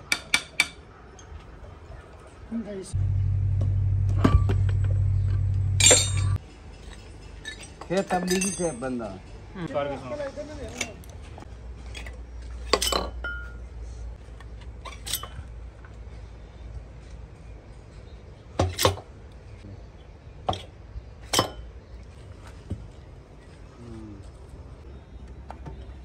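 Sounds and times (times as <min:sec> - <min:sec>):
low steady hum: 0:03.0 - 0:06.4
metal parts clinking: 0:05.8 - 0:08.9.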